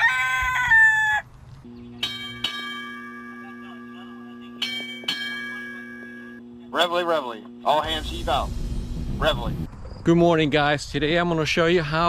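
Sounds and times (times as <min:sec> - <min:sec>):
rooster crowing: 0:00.0 - 0:01.3
low steady drone: 0:01.7 - 0:09.7
bell-like chimes: 0:02.0 - 0:06.4.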